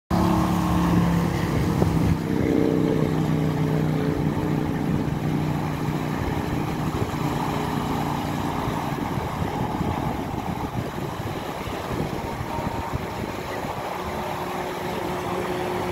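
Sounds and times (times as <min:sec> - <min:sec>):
engine hum: 0:00.1 - 0:15.9
wind buffeting microphone: 0:00.1 - 0:15.9.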